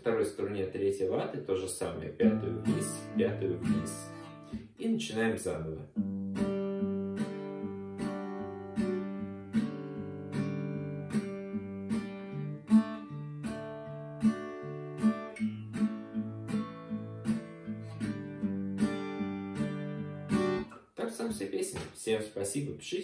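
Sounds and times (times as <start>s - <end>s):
acoustic guitar strumming: 2.2s - 5.2s, 5.8s - 20.8s.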